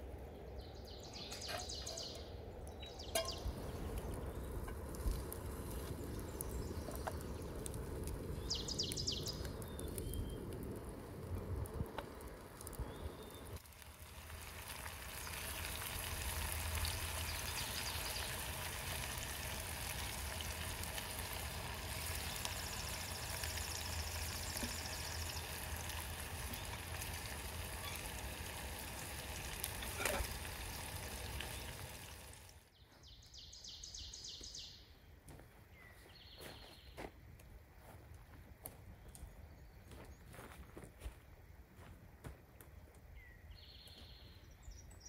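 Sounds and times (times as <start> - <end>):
bird chirping: 0.3 - 4.6, 8.3 - 10.5, 43.2 - 45.0
bacon sizzling in skillet: 12.8 - 32.6.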